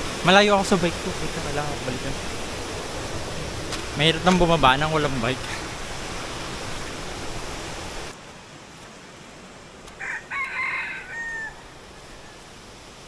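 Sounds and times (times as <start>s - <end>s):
rushing stream water: 0.0s - 13.0s
rooster crowing: 10.0s - 12.4s.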